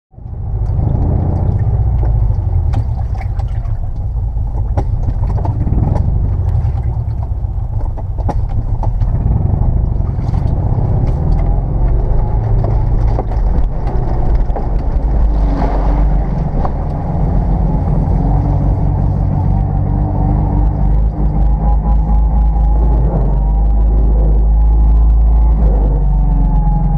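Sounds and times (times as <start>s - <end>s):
car engine low rumble: 0.1s - 26.9s
knocks and rattles: 0.6s - 23.8s
water splashing against car: 0.7s - 9.1s.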